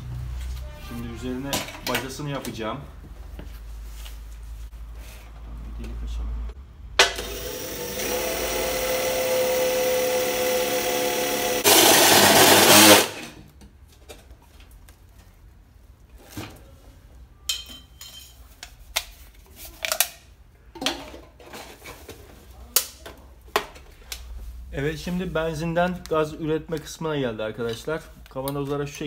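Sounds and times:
cordless drill motor whine: 7.2s - 13.1s.

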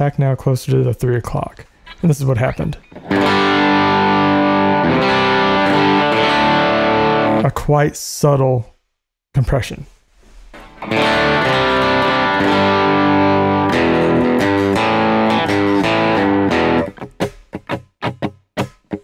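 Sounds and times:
electric guitar chords: 2.8s - 7.4s, 10.6s - 19.0s.

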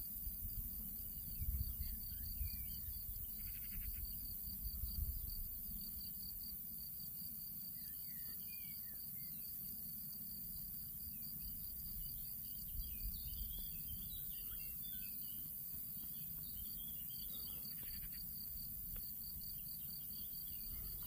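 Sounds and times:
insect chirring: 1.2s - 6.5s, 11.1s - 21.0s.

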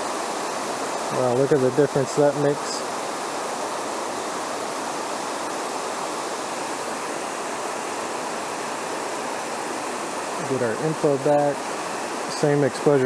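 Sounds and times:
water spilling over rock ledges: 0.0s - 13.0s.

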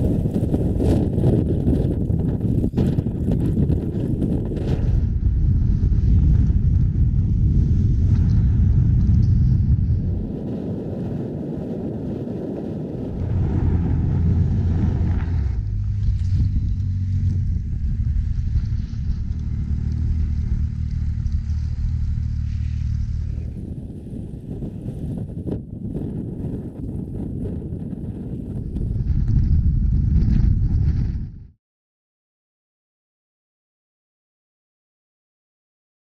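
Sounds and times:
wind buffeting microphone: 0.0s - 31.6s.

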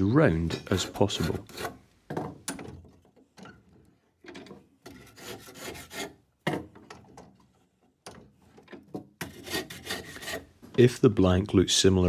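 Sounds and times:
rasp scraping wood: 0.5s - 1.9s, 4.8s - 6.3s, 9.2s - 10.6s.

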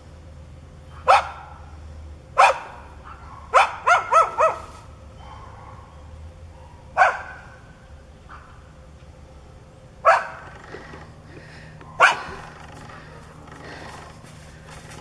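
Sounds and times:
dog barking: 1.0s - 1.6s, 2.4s - 7.6s, 10.0s - 10.4s, 11.8s - 12.4s.

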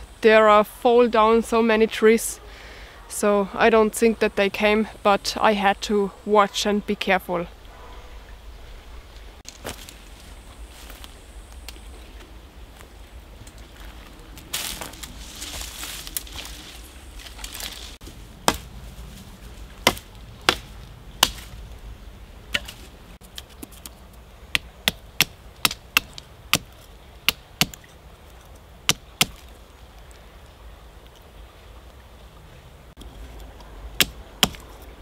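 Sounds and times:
hatchet chopping wood: 18.4s - 18.6s, 19.8s - 21.5s, 24.5s - 27.8s, 28.9s - 29.4s, 34.0s - 34.7s.

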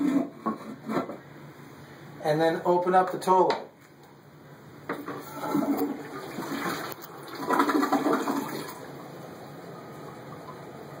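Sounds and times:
toilet water draining: 5.0s - 11.0s.

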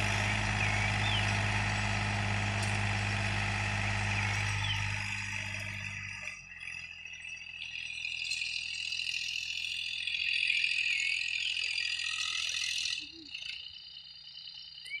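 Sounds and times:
distant tractor humming: 0.0s - 7.2s.

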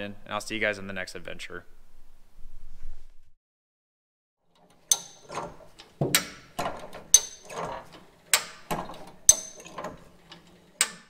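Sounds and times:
mechanical clicks and clanks: 4.5s - 11.0s.

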